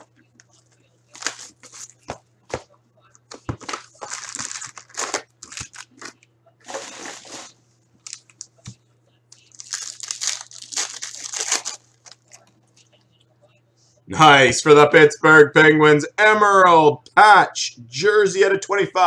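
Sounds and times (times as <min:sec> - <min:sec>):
low steady hum: 0:00.0 - 0:19.0
foil wrappers crinkling and tearing: 0:01.1 - 0:02.2, 0:03.4 - 0:08.5, 0:09.3 - 0:12.4.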